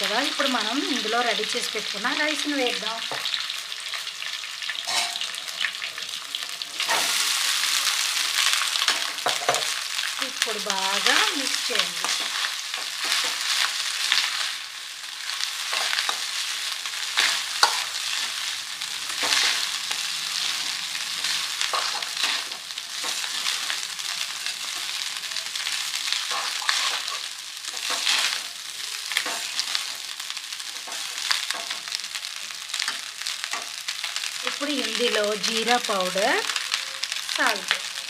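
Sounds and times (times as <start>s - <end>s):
soft sizzle: 0.0s - 38.0s
steel spatula scraping a pan: 4.8s - 5.3s, 26.1s - 28.5s.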